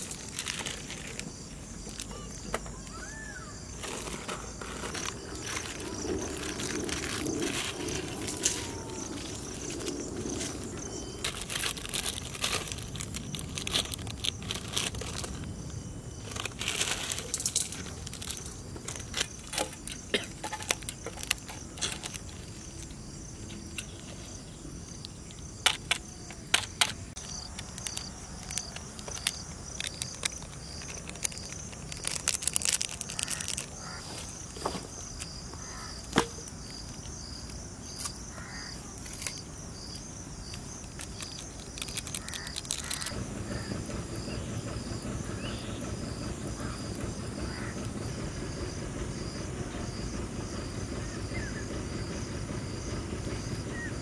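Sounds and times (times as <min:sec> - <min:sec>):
plastic wrappers crinkling: 0:00.0 - 0:02.4, 0:03.8 - 0:15.6, 0:16.2 - 0:23.0, 0:25.7 - 0:34.7, 0:40.6 - 0:43.1
insects chirping: 0:00.0 - 0:54.0.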